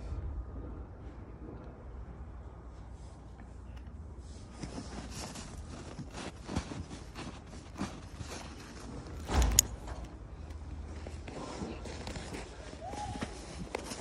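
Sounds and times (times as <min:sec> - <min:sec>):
snow crunching and scuffing: 0:04.3 - 0:09.2, 0:10.7 - 0:14.0.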